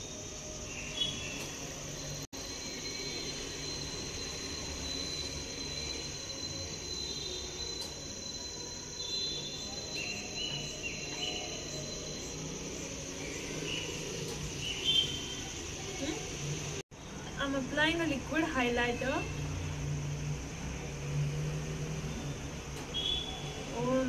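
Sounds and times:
faint chirps: 0.0 - 17.3
high-pitched insect chirring: 0.0 - 24.0.

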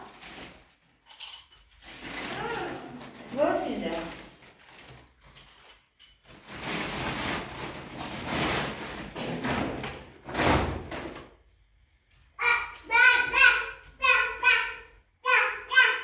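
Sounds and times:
rustling plastic sack: 0.0 - 0.9, 1.8 - 5.4, 6.3 - 10.9.

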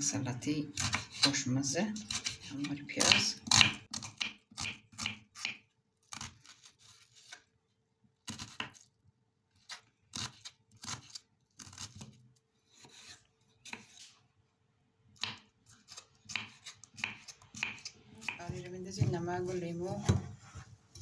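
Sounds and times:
knife dicing onion on wooden board: 0.8 - 1.4, 2.0 - 7.4, 8.2 - 8.8, 15.2 - 21.0.

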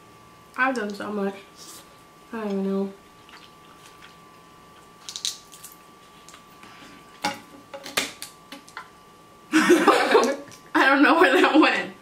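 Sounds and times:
faint steady hum: 0.0 - 12.0
crab shells cracking: 4.8 - 6.5.

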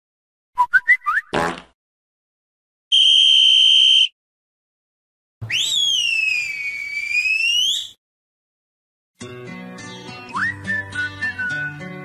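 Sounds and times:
whistle with changing pitch: 0.6 - 1.3, 2.9 - 4.1, 5.5 - 8.0
shrill whistle blast: 2.9 - 4.2, 5.4 - 8.0.

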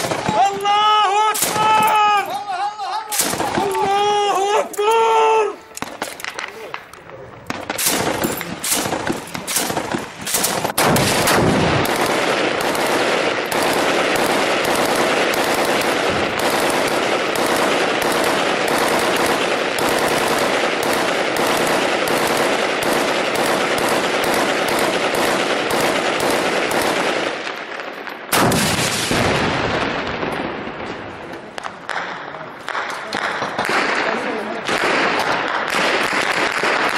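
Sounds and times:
automatic gunfire: 0.0 - 0.6, 3.1 - 4.0, 7.5 - 29.5, 31.6 - 36.9
gunshots: 0.0 - 2.4, 3.1 - 4.8, 5.7 - 36.9.

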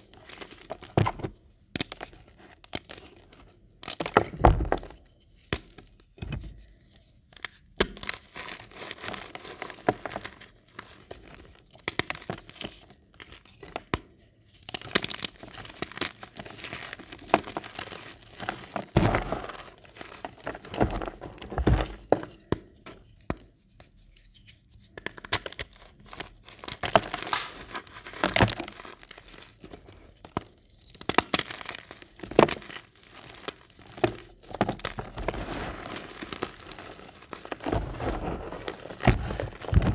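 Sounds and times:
hands crushing chalk: 11.1 - 39.9.

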